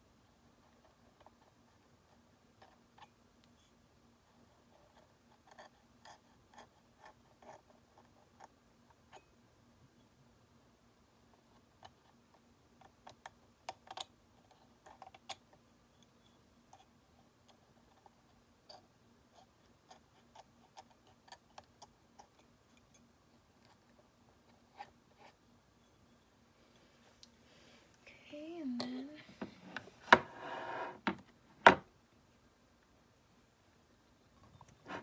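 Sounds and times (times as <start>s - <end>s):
faint steady hum: 0.0s - 35.0s.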